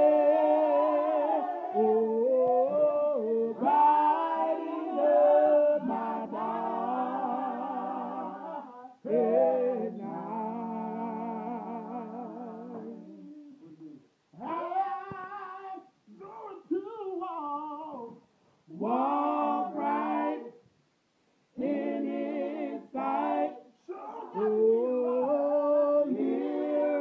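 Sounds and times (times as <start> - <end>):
group singing a cappella: 0.0 - 15.9, 17.7 - 20.7, 21.5 - 27.0.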